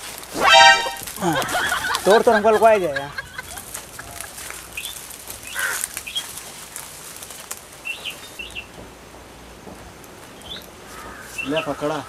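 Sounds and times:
leaf rustling: 0.0s - 12.0s
birds chirping: 10.3s - 12.0s.

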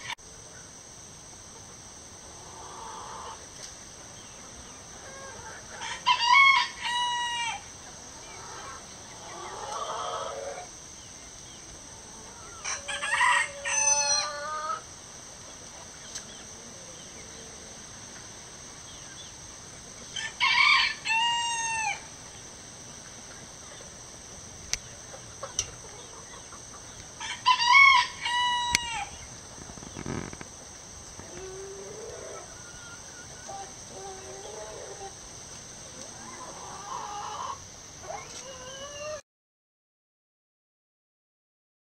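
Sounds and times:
rooster crowing: 5.1s - 7.7s, 12.4s - 14.8s, 20.2s - 22.1s, 27.2s - 29.1s.

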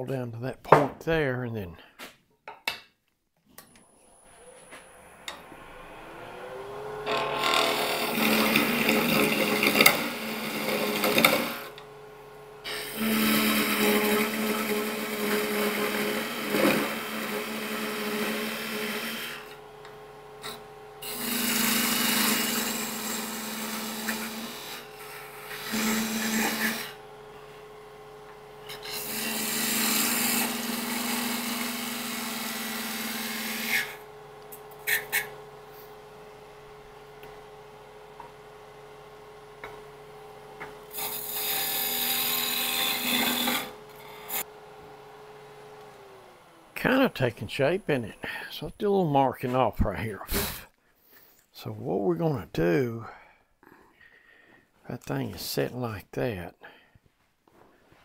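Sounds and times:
wood lathe humming: 3.6s - 49.2s
tool scraping spinning wood: 3.8s - 51.3s.

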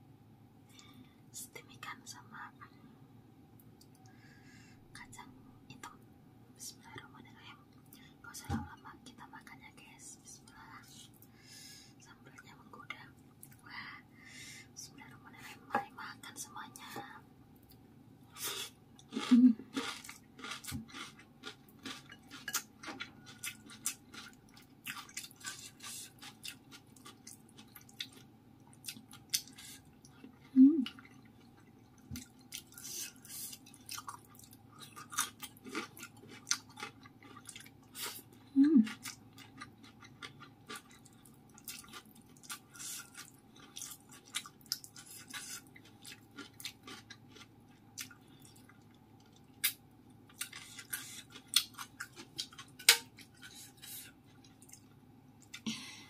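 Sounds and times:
wet chewing: 19.0s - 38.2s, 38.9s - 55.6s.

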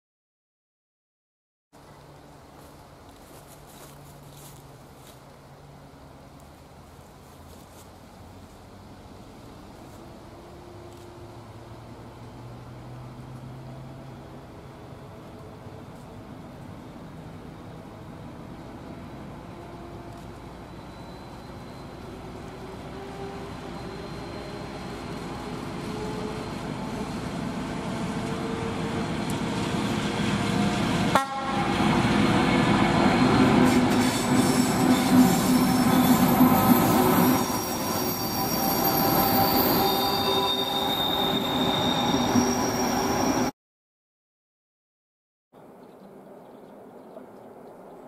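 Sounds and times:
diesel locomotive engine: 1.8s - 43.5s
train wheels rumbling: 2.0s - 43.5s
wheels squealing on curve: 23.0s - 27.3s, 32.9s - 43.5s.

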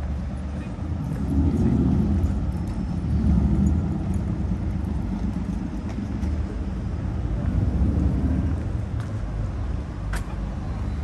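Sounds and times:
vehicles passing close by: 0.0s - 11.0s.

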